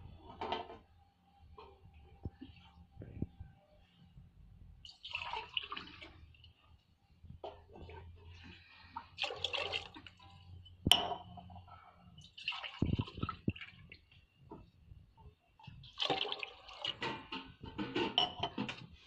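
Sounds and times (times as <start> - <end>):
water pouring and splashing: 4.8 - 6.6, 7.7 - 11.0, 12.2 - 14.2, 15.6 - 19.0.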